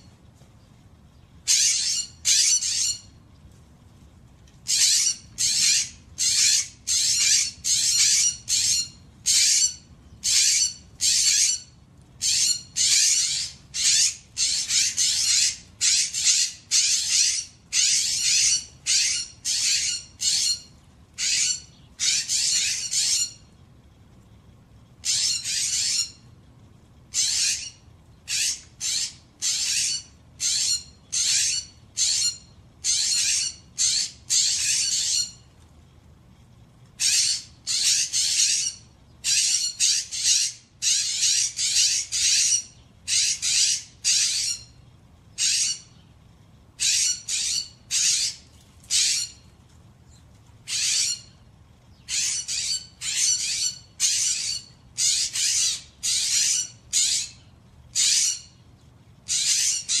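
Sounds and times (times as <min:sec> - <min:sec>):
jays giving harsh screech calls: 0:01.5 - 0:03.1, 0:46.8 - 0:49.4, 0:52.1 - 0:58.6, 0:59.3 - 1:00.0.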